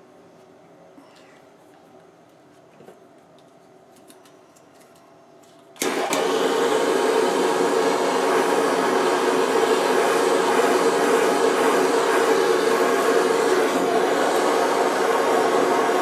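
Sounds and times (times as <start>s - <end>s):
gas torch hissing: 5.8s - 16.0s.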